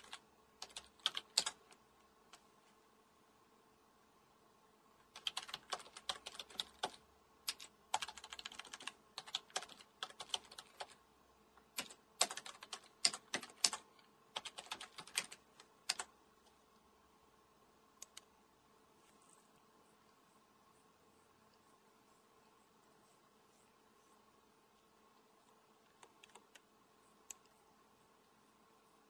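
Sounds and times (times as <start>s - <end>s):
typing on keyboard: 0.0s - 1.8s, 5.1s - 11.0s, 11.7s - 16.1s, 25.9s - 26.6s.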